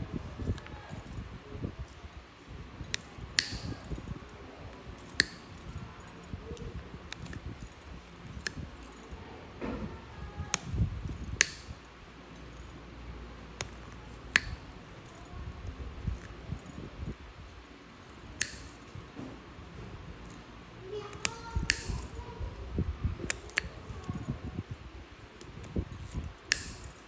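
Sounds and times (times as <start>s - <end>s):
soft scraping and handling noise: 0.0s - 27.0s
blade clicking through toenail: 2.8s - 9.2s, 10.2s - 12.8s, 13.5s - 16.9s, 18.1s - 19.1s, 20.2s - 24.4s, 25.3s - 27.0s.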